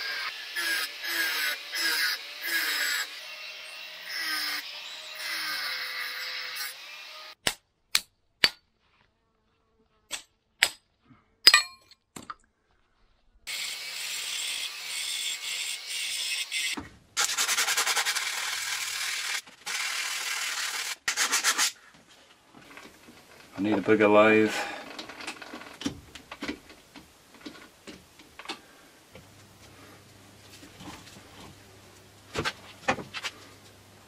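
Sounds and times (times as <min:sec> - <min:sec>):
angle grinder cutting steel: 0:00.0 - 0:07.4, 0:13.5 - 0:21.1
sharp metal knocks: 0:11.5 - 0:11.9.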